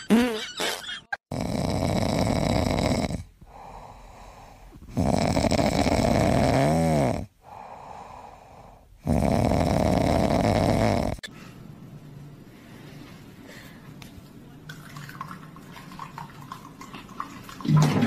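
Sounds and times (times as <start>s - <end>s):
cat snoring: 1.3s - 11.2s
cat breathing: 3.4s - 5.0s, 7.4s - 9.8s.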